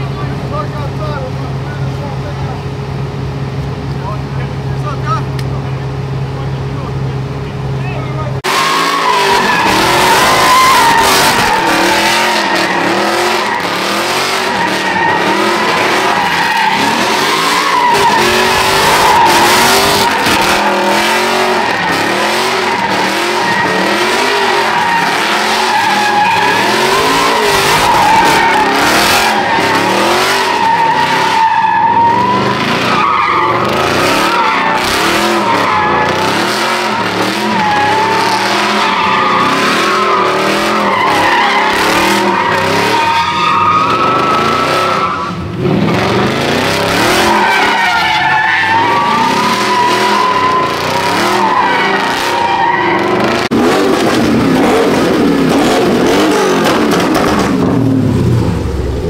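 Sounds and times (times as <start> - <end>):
car engine revving: 0.0 - 59.0
tyres squealing: 7.8 - 45.4, 46.3 - 54.8.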